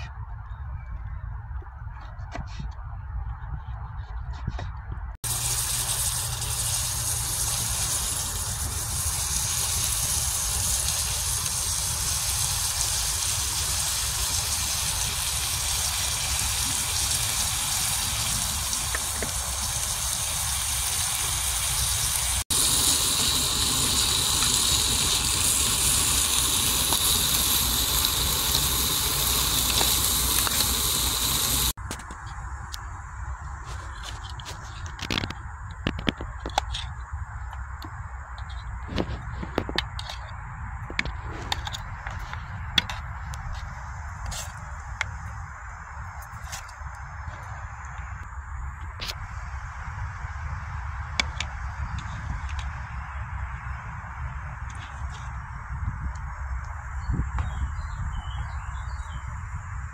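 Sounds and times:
vegetables sizzling in a metal pan: 5.3s - 31.8s.

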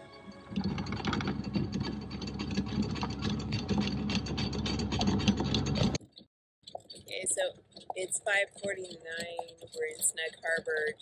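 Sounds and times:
anchor windlass whirring: 0.0s - 6.2s
chain links clicking: 0.5s - 6.0s.

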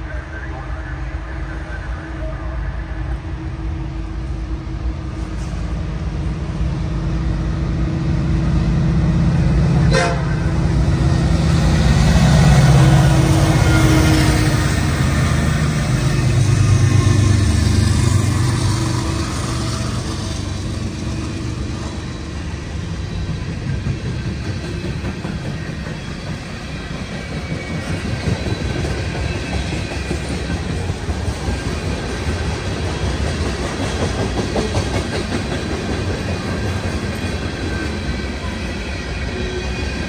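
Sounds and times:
diesel locomotive engine rumble: 0.0s - 40.0s.

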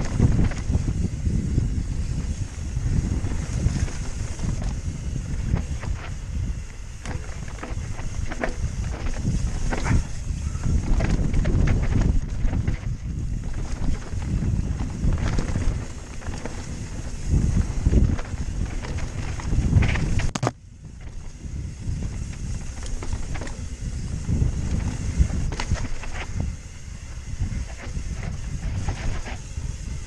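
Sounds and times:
bike rattling knocks: 0.0s - 29.7s
bike tyres crunching over rock: 0.0s - 30.0s
wind buffeting microphone: 0.0s - 30.0s.

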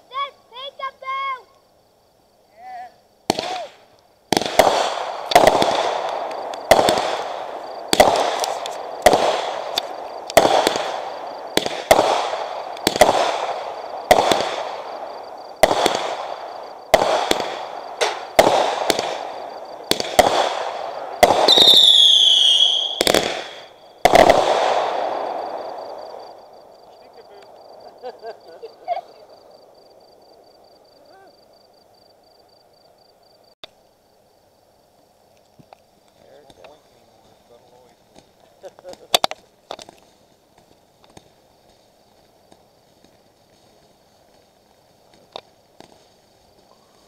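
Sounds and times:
fireworks bangs: 3.2s - 31.6s, 35.6s - 47.0s
falling firework whistle: 21.2s - 26.4s.

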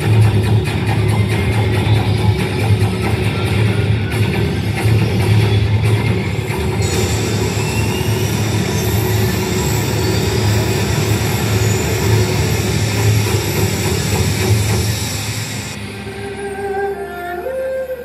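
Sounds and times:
faint rising whistles: 6.8s - 18.0s.

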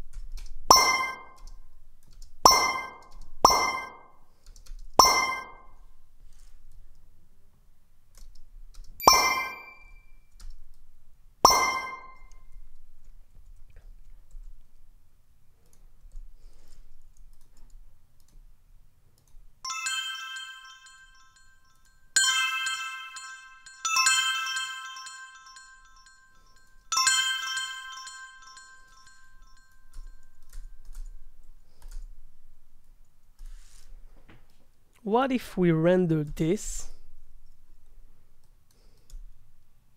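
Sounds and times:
synthesized bell chimes: 0.7s - 1.4s, 2.5s - 4.1s, 5.0s - 5.8s, 9.0s - 10.2s, 11.5s - 12.4s, 19.7s - 30.9s.

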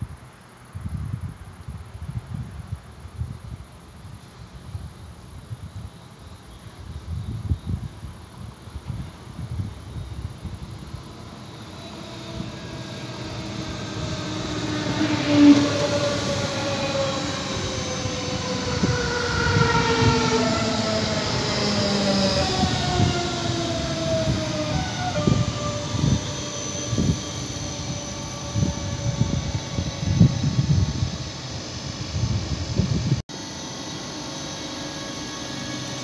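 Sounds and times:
train traction motors whining: 9.6s - 36.0s.

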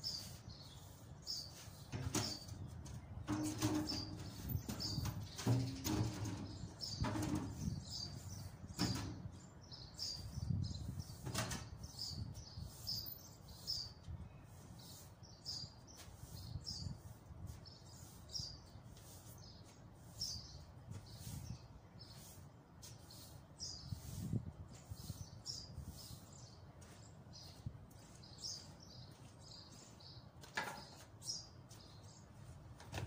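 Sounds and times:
broom sweeping tiled floor: 0.0s - 6.4s, 10.0s - 12.0s, 12.6s - 27.2s.

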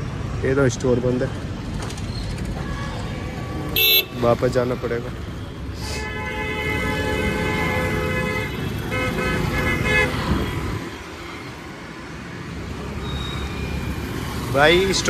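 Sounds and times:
road traffic and engines: 0.0s - 15.0s
vehicle horn honking: 3.8s - 4.2s.

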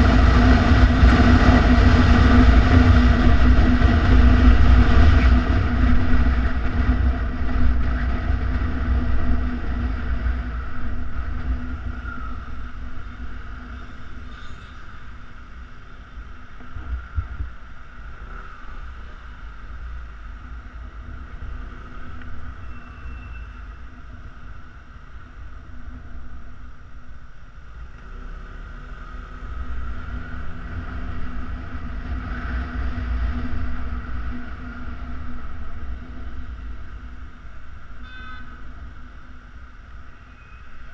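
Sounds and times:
wind rush on microphone: 0.0s - 26.6s, 29.6s - 38.0s
scooter engine: 21.0s - 40.9s.

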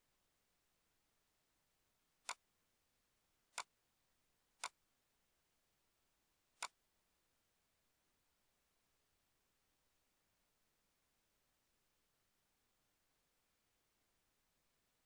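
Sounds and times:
computer mouse clicks: 4.6s - 4.8s.

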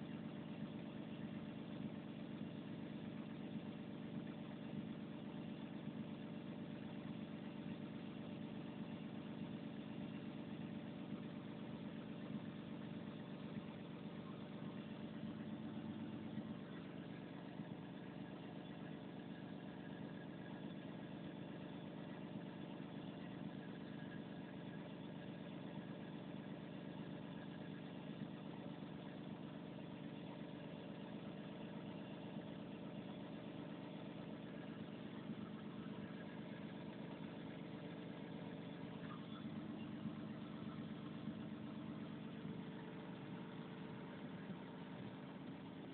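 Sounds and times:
faint high whine: 32.7s - 45.9s
diesel engine idling: 33.0s - 45.9s.

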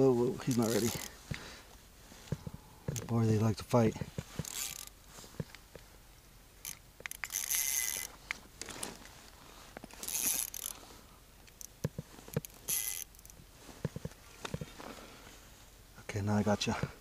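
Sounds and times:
fishing reel whirring and ratcheting: 0.4s - 1.2s, 4.4s - 4.9s, 6.6s - 8.1s, 10.0s - 10.8s, 11.5s - 13.4s.

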